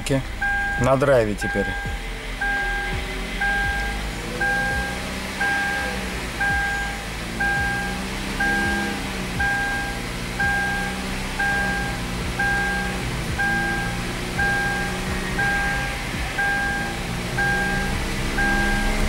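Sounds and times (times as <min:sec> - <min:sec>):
car engine and drivetrain running: 0:00.0 - 0:19.0
seatbelt warning chime beeping: 0:00.4 - 0:19.0.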